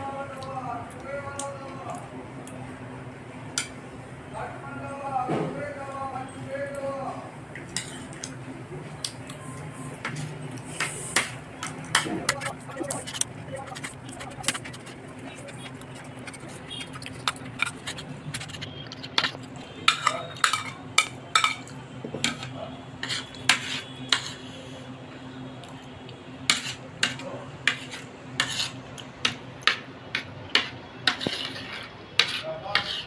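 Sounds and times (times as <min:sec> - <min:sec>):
metal spoon scraping a plate: 0:07.8 - 0:08.2, 0:11.9 - 0:21.6, 0:27.7 - 0:28.8, 0:30.6 - 0:33.0.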